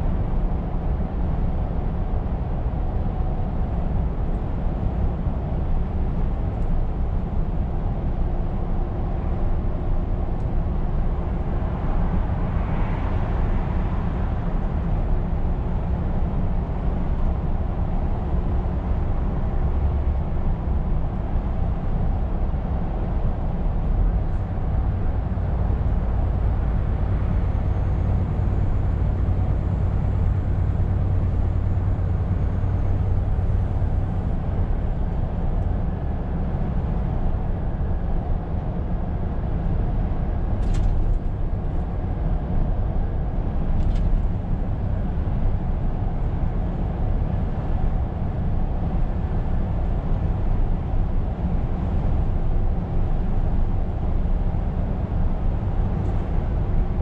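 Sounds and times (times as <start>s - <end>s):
road noise: 0.0s - 57.0s
truck engine drone: 0.0s - 57.0s.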